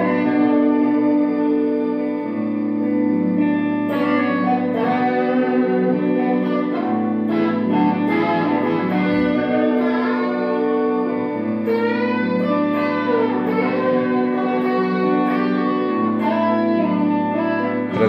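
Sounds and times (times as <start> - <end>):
electric guitar sustained notes: 0.0 - 18.0.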